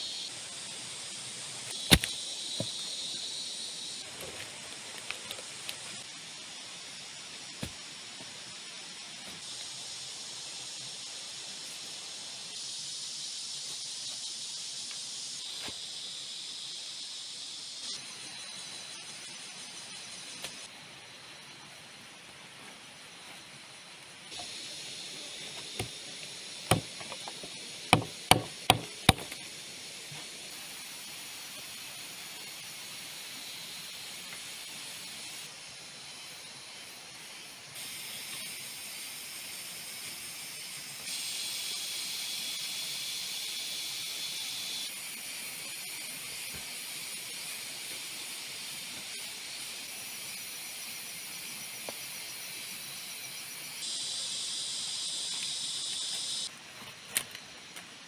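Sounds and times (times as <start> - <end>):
insects chorus: 0.0 - 58.0
sharp knocks: 26.7 - 29.3.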